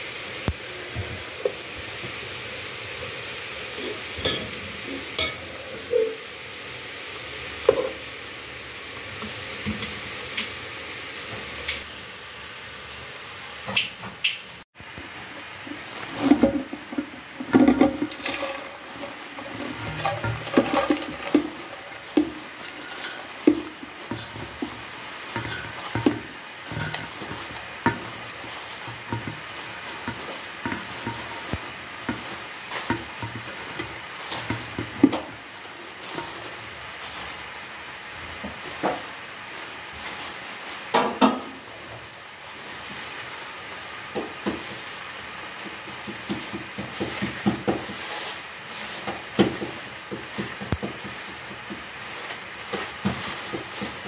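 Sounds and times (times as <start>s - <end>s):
colander and pot knocking: 3.8s - 6.2s, 7.6s - 8.1s, 15.7s - 37.1s, 38.3s - 39.2s, 40.8s - 41.9s, 44.1s - 44.9s, 45.6s - 54.0s
wet greens and gloves rustling: 14.8s - 54.0s.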